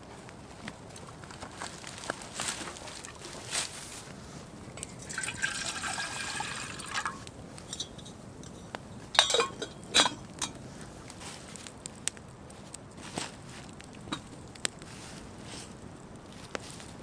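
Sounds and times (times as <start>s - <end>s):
liquid pouring into container: 4.8s - 7.2s
clinks and knocks: 9.2s - 10.6s.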